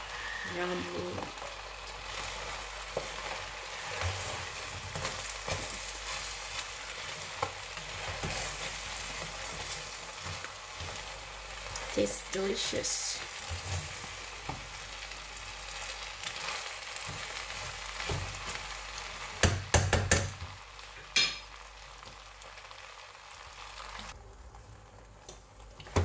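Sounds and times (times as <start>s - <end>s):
rice sizzling in a pot: 0.0s - 26.0s.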